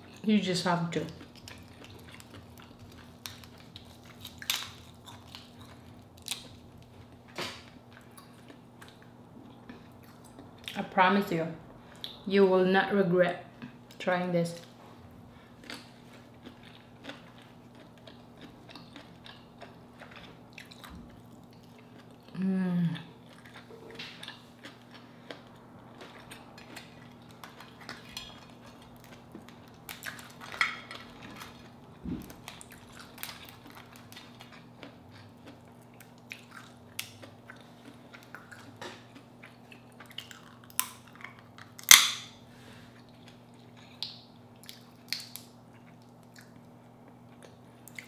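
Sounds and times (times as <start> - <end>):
wet eating sounds: 1.0 - 10.8
shell cracking and peeling: 1.4 - 6.6, 41.8 - 42.3.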